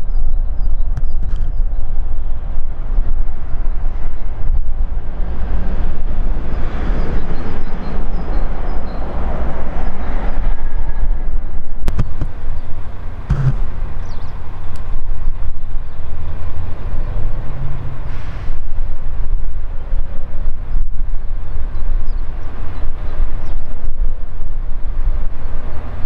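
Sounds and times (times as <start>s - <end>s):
freight train rumbling past: 2.2s - 20.7s
sharp clicks: 11.9s - 12.4s, 13.3s - 13.7s.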